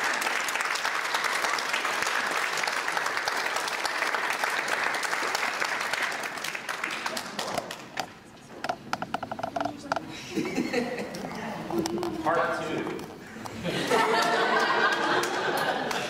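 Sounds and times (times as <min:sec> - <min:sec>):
congregation applauding: 0:00.0 - 0:08.0, 0:13.8 - 0:16.0.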